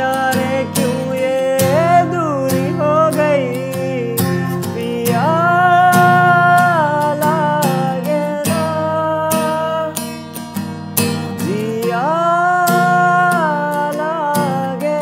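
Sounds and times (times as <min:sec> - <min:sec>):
man singing: 0:00.0 - 0:10.2, 0:11.2 - 0:15.0
acoustic guitar strumming: 0:00.0 - 0:15.0.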